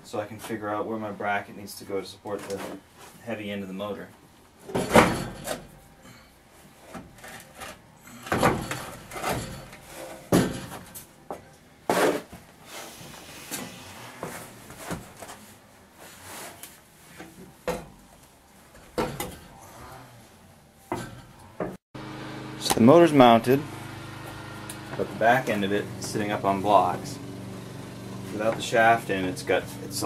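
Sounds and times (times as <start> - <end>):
metal parts knocking and scraping: 7.1 - 11.0.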